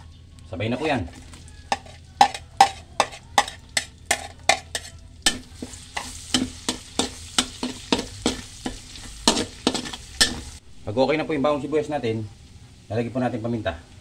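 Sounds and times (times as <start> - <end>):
spatula scraping a metal wok: 0.6 - 10.6
oil sizzling: 0.7 - 14.0.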